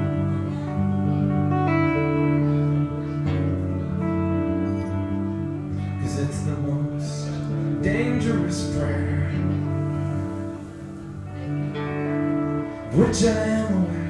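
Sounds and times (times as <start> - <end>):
looped electric guitar chords: 0.0 - 14.0.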